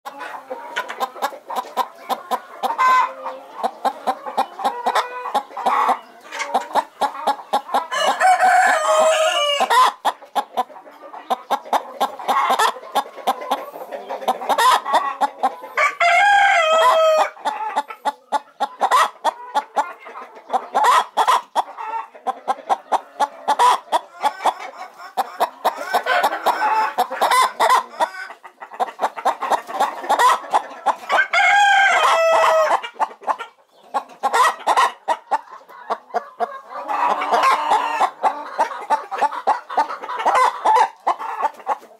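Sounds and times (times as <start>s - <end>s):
hen clucking: 0.1s - 41.9s.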